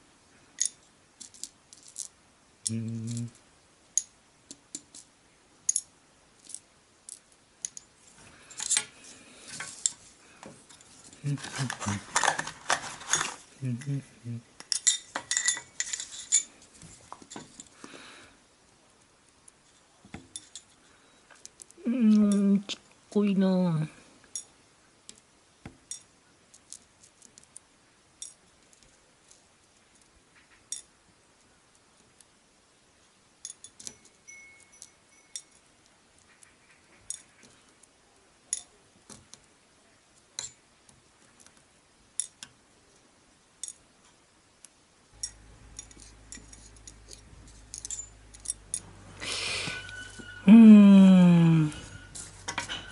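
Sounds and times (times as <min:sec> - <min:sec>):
tweezers clinking in metal dish: 0:45.2 - 0:48.9
metal dishes clattering on table: 0:51.9 - 0:52.9.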